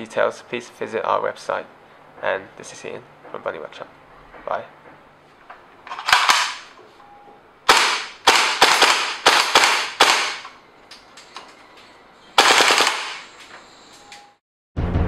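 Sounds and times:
airsoft rifle shots: 0:06.0 - 0:06.7, 0:07.7 - 0:10.5, 0:12.4 - 0:13.3.

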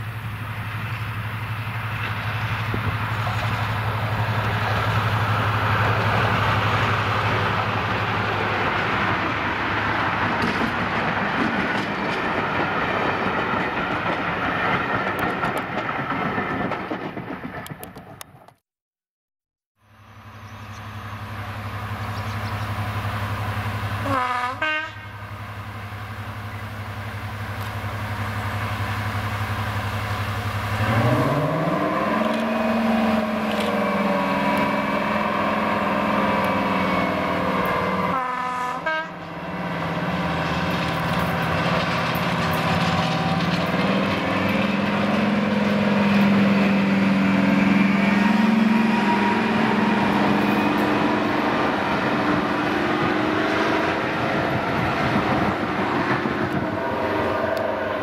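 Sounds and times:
diesel locomotive engine: 0:00.0 - 0:18.6, 0:19.8 - 0:58.0
train horn: 0:24.0 - 0:25.2, 0:37.8 - 0:39.4, 0:47.8 - 0:51.4.

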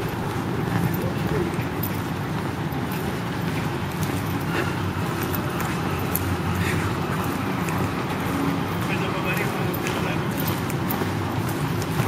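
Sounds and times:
distant road traffic rumble: 0:00.0 - 0:12.0.

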